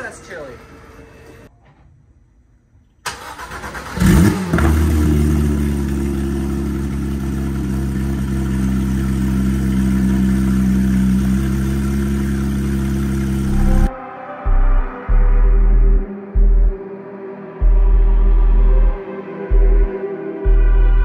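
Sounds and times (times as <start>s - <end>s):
car engine starting and idling: 3.0s - 13.9s.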